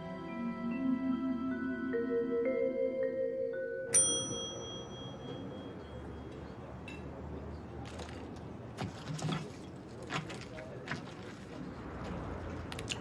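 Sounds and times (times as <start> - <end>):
bright metallic ding: 3.9 - 6.2.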